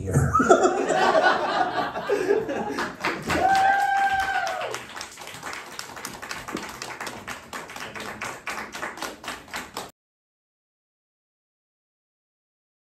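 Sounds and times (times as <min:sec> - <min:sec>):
audience applauding: 0:01.2 - 0:09.9
whooping cheer: 0:03.0 - 0:04.9.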